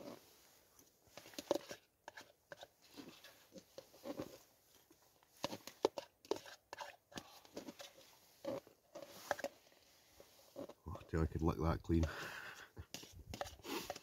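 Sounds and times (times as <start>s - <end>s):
plastic fork scraping a cup: 1.1s - 4.4s, 5.3s - 10.8s, 12.0s - 14.0s.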